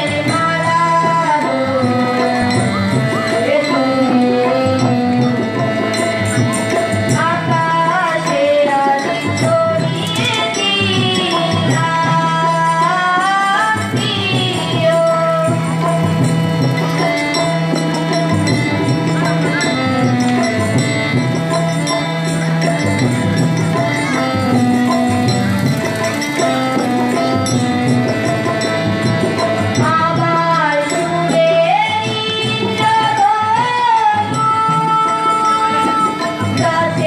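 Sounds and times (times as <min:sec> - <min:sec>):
person singing: 0:00.0 - 0:16.2
harmonium chords: 0:00.0 - 0:37.0
tabla rhythm: 0:00.0 - 0:37.0.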